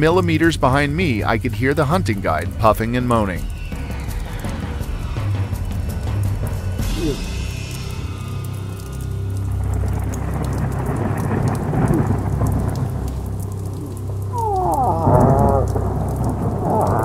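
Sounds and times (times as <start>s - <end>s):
heavy rain: 0.0s - 17.0s
rolling thunder: 1.9s - 17.0s
moose moaning call: 13.6s - 17.0s.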